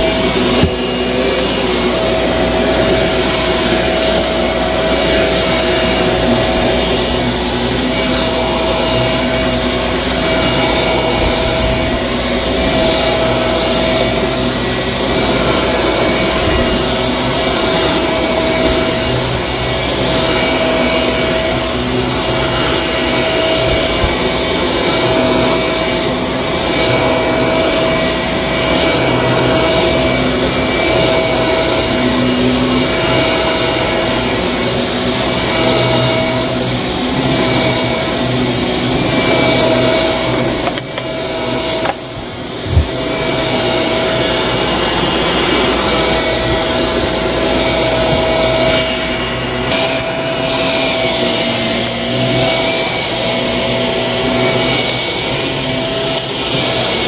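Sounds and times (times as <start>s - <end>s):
vacuum cleaner running on carpet: 0.0s - 57.0s.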